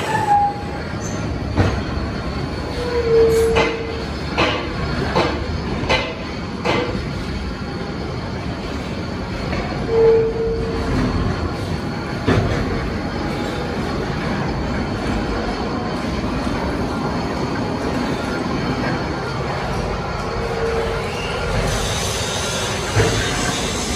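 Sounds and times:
high squeal: 0:00.0 - 0:01.3, 0:20.2 - 0:23.9
machinery rumble and clatter: 0:00.0 - 0:23.9.

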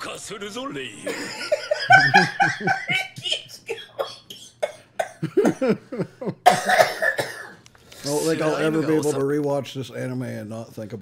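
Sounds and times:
men laughing: 0:01.0 - 0:03.6, 0:05.2 - 0:06.5.

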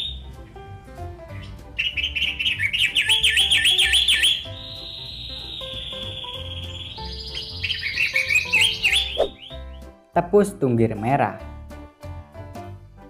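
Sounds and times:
bird whistling and chirping: 0:00.0 - 0:00.4, 0:01.3 - 0:09.9
soft background music: 0:00.0 - 0:13.0.

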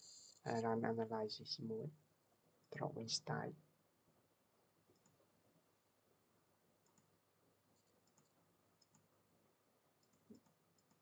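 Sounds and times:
computer mouse clicks: 0:04.9 - 0:05.2, 0:06.8 - 0:07.2, 0:07.8 - 0:09.1, 0:10.0 - 0:11.0.

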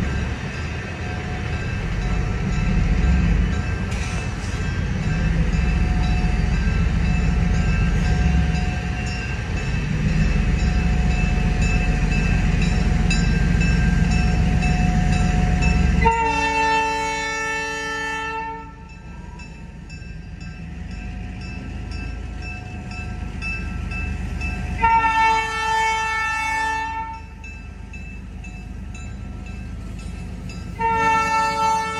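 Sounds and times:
locomotive air horn blasts: 0:16.0 - 0:18.9, 0:24.8 - 0:27.3, 0:30.8 - 0:31.9.

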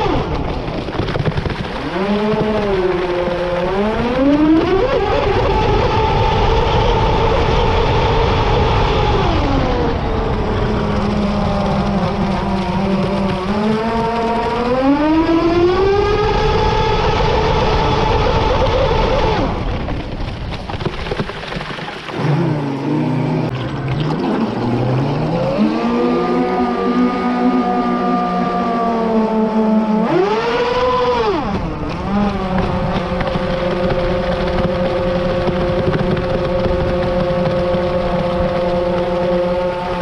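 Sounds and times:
boat motor whining: 0:00.0 - 0:19.8, 0:22.1 - 0:40.0
rushing water: 0:20.6 - 0:28.6.

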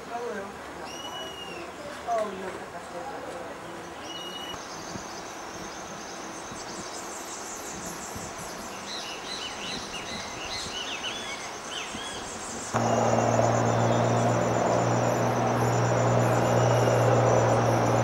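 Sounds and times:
bird calling: 0:12.8 - 0:18.0
insect trilling: 0:12.8 - 0:18.0.

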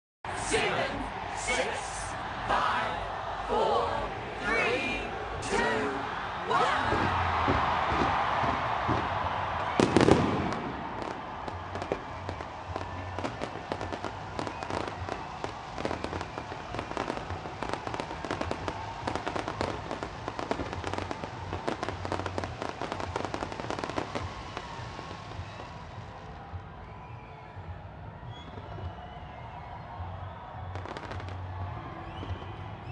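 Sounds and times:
fireworks crackling: 0:06.8 - 0:26.5
firework bang: 0:06.9 - 0:12.4.

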